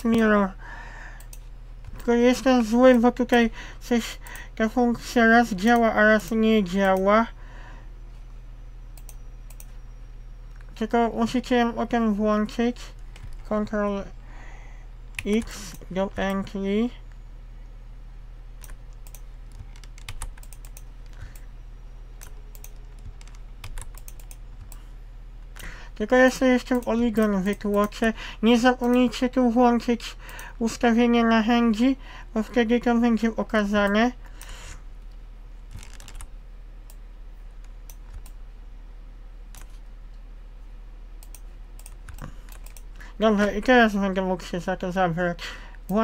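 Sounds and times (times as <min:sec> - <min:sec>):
low electrical hum: 0:00.0 - 0:46.0
keyboard and mouse clicks: 0:09.0 - 0:09.8, 0:13.0 - 0:13.5, 0:18.6 - 0:21.5, 0:22.2 - 0:24.8, 0:26.6 - 0:28.0, 0:33.8 - 0:37.0, 0:37.6 - 0:38.4, 0:39.5 - 0:39.8, 0:41.2 - 0:43.6.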